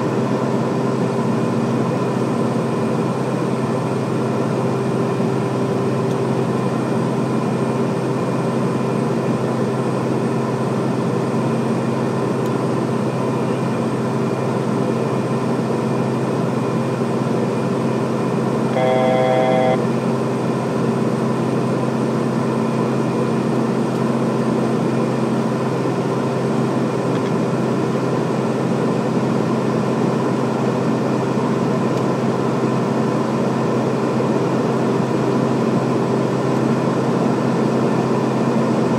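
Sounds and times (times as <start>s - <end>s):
turboprop engines droning: 0.0s - 38.9s
pulsed electronic chime: 18.7s - 19.8s.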